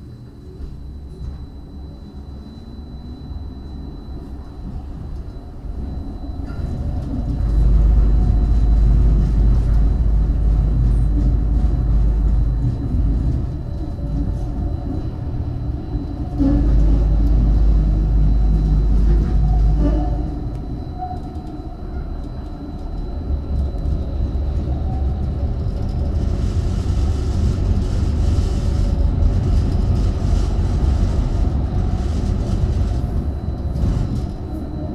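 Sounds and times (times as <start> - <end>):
tram wheels rumbling on rails: 0.0 - 34.9.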